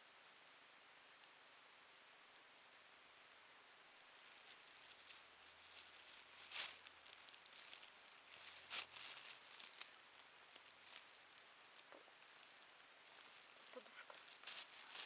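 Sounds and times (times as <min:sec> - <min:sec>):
louder plastic crackles: 0:04.0 - 0:15.0
plastic bags crinkling: 0:04.1 - 0:15.0.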